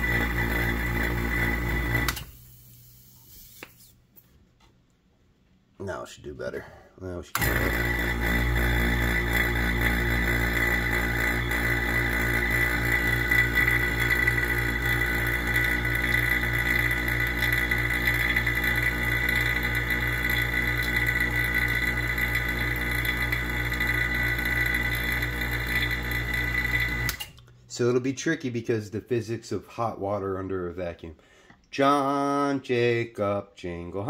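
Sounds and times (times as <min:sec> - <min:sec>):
vacuum pump pulsing and whining: 0:00.0 - 0:02.3, 0:07.4 - 0:27.3.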